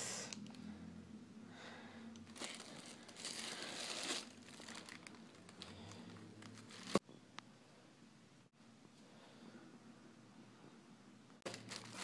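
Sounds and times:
tissue paper rustling and crinkling: 2.3 - 7.0, 11.4 - 12.0.

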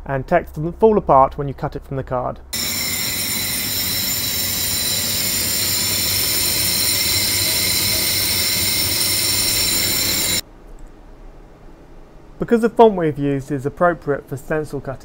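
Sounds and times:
laser cutter whirring hiss: 2.6 - 10.4.

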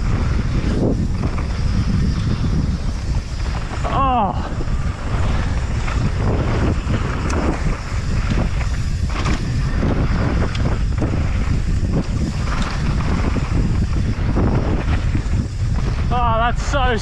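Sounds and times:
wind buffeting microphone: 0.0 - 17.0
bike knocks and clatters: 4.8 - 16.2.

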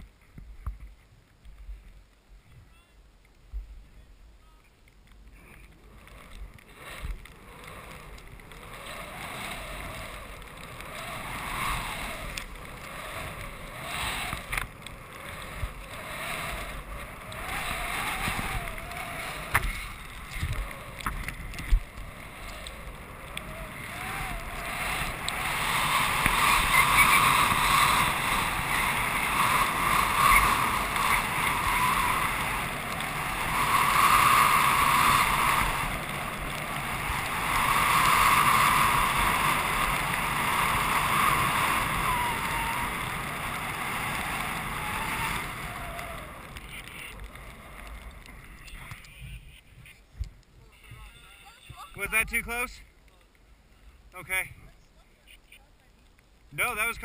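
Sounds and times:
skis hissing through powder snow: 5.4 - 49.5
wind rushing over microphone: 5.4 - 52.8.

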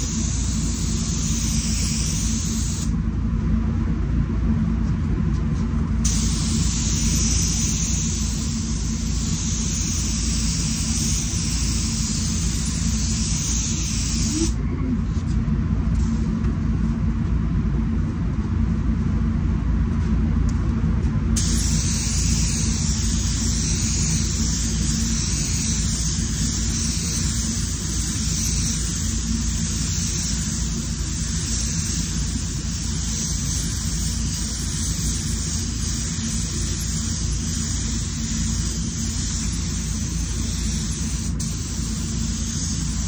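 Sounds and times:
spray gun hissing: 0.0 - 2.9, 6.0 - 14.6, 21.4 - 43.0
air fans rumbling: 0.0 - 43.0.

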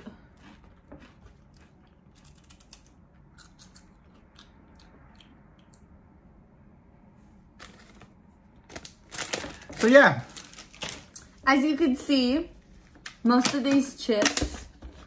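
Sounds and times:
crunchy snacks being chewed: 0.0 - 5.8.

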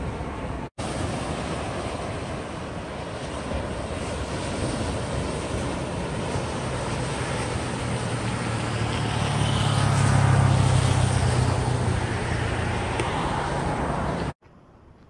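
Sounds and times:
surf: 0.0 - 14.6
wind: 0.0 - 15.0
engine drone passing by: 4.6 - 14.4.

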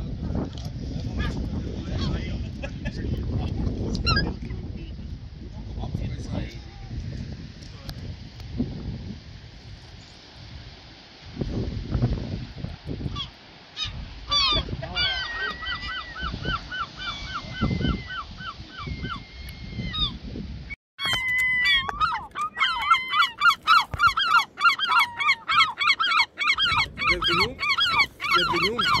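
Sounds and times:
gulls yelping calls: 13.1 - 20.2, 21.0 - 29.0.

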